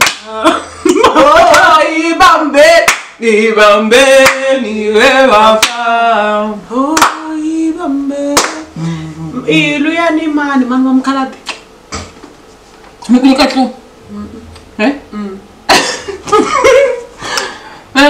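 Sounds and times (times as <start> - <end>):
sharp handclaps: 0.0 - 0.3, 2.8 - 3.2, 4.2 - 4.4, 5.6 - 5.8, 7.0 - 7.3, 8.4 - 8.7
women singing a chant: 0.2 - 11.2.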